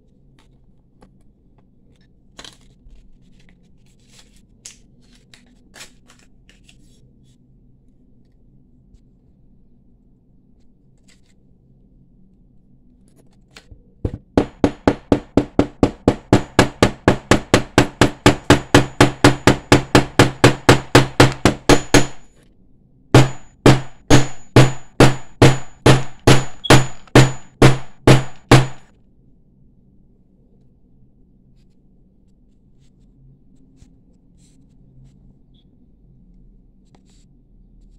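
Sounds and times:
hammer striking metal: 14.1s - 22.3s, 23.2s - 28.9s.

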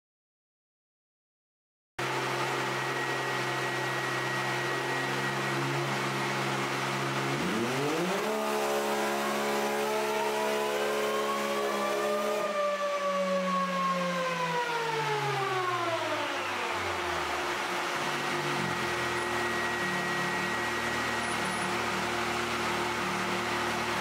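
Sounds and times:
drivetrain whine: 2.0s - 24.0s
engine idling and revving: 2.0s - 24.0s.

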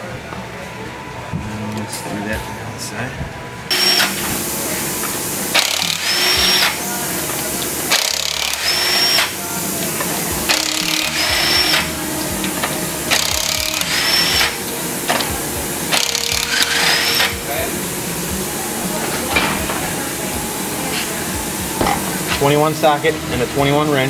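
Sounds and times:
pneumatic impact wrench: 3.7s - 17.6s.

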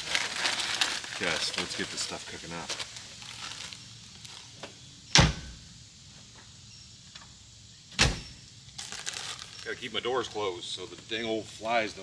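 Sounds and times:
van door slamming: 5.1s - 5.6s, 8.0s - 8.3s.

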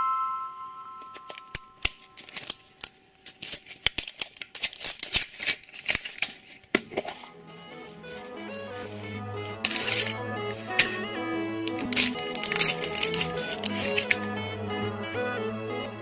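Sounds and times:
plastic wrapper crinkling: 1.2s - 8.9s, 9.6s - 11.0s, 11.7s - 14.3s
music chord: 7.2s - 16.0s.

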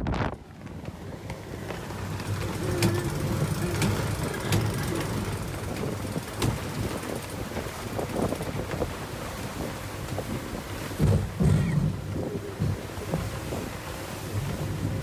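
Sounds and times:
water rumbling along hull: 0.0s - 15.0s
wind rushing over microphone: 0.0s - 15.0s.

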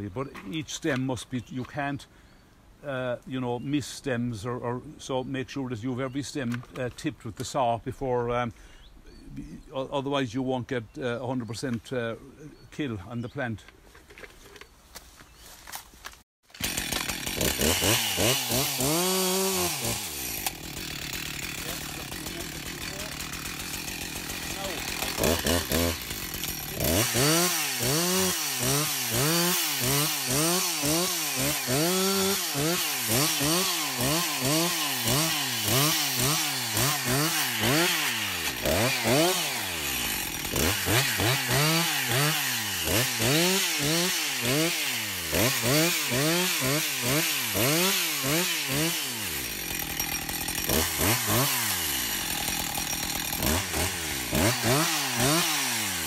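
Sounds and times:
chainsaw revving: 16.5s - 56.0s.

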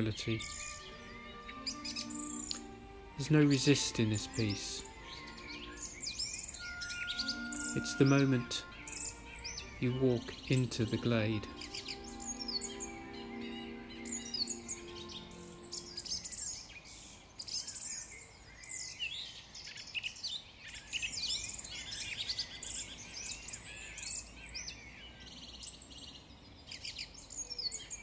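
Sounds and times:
held music notes: 0.0s - 16.5s
birds chirping and trilling: 0.0s - 28.0s.

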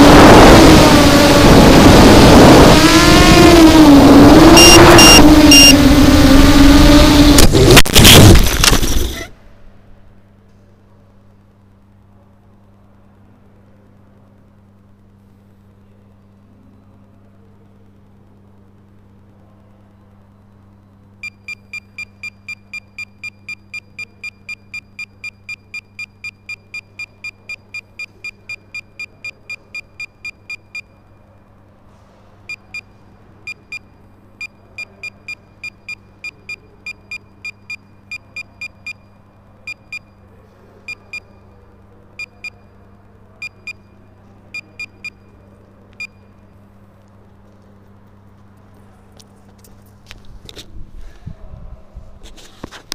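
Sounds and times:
low electrical hum: 0.0s - 52.9s
high-pitched beeps: 4.4s - 5.8s.

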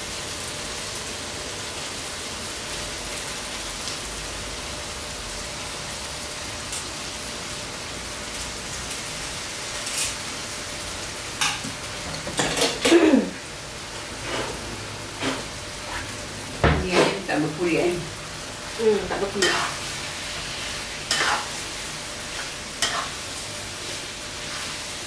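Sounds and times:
chicken sizzling in a wok: 0.0s - 25.0s
spatula clicking while stirring: 19.4s - 19.8s, 21.1s - 21.5s, 22.4s - 23.2s.

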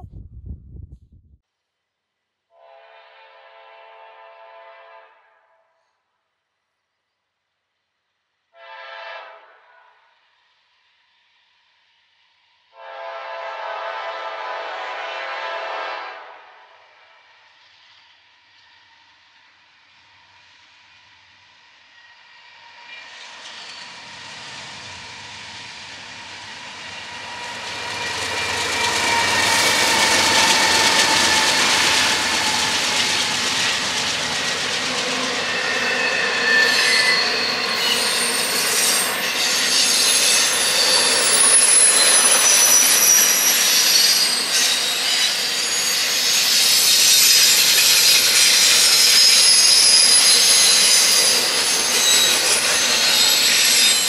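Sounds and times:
freight train rolling past: 10.2s - 54.0s
train wheels squealing: 17.1s - 54.0s.

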